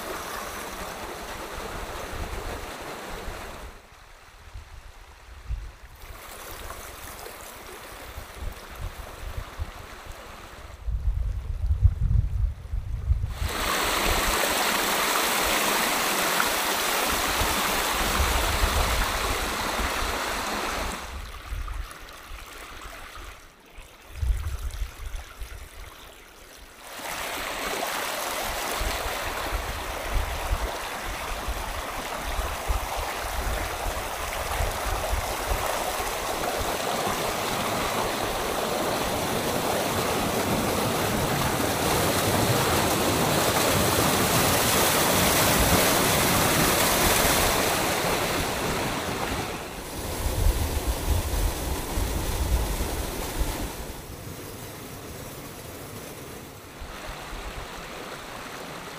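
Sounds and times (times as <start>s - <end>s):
stream rushing over rocks: 0.0s - 3.9s, 13.3s - 23.5s, 26.8s - 55.6s, 56.7s - 58.9s.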